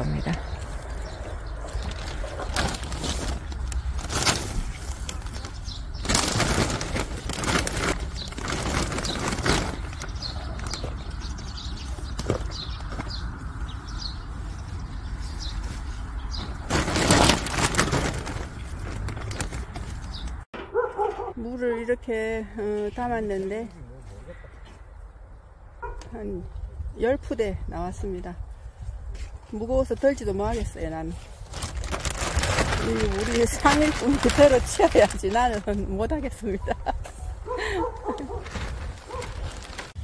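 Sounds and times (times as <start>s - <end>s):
plastic sack rustling and crinkling: 0.1s - 13.0s, 16.4s - 20.4s, 30.6s - 36.8s, 38.0s - 40.0s.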